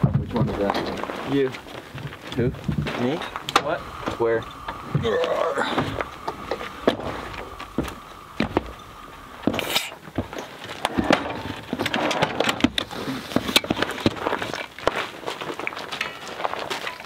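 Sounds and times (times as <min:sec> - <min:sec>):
camp gear knocking and rustling: 0:00.0 - 0:08.8, 0:09.4 - 0:17.0
footsteps on roof rack: 0:00.0 - 0:17.0
folding ladder collapsing: 0:09.5 - 0:14.8.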